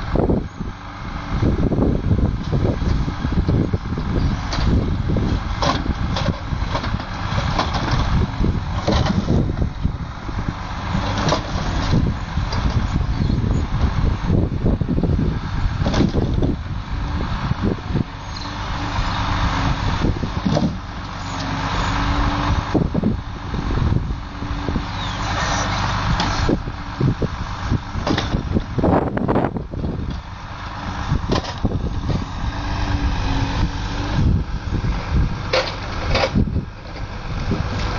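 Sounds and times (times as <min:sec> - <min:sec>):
diesel engine running: 0:00.0 - 0:37.9
logs knocking together: 0:20.4 - 0:20.8.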